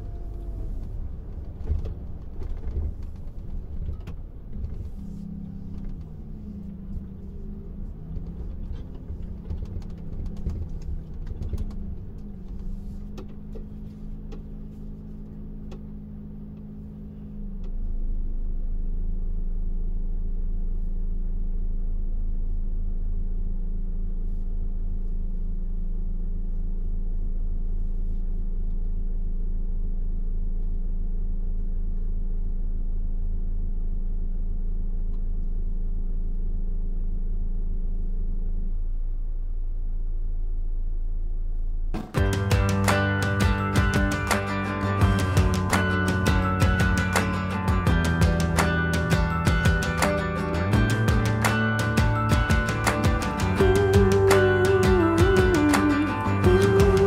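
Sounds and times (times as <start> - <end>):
diesel truck engine rumbling: 0.0 - 20.1, 38.5 - 57.0.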